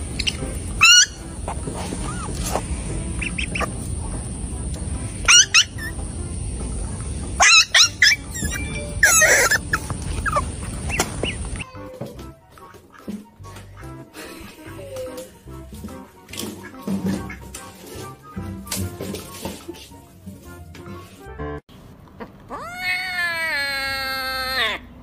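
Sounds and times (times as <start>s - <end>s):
budgerigar squawking: 0.0s - 3.9s, 5.3s - 6.0s, 7.4s - 11.6s
steady background noise: 0.0s - 11.6s.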